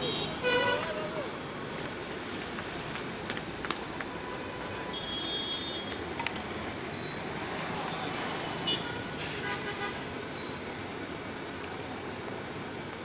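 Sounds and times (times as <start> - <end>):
street traffic: 0.0 - 13.0
car horn toot: 4.9 - 5.9.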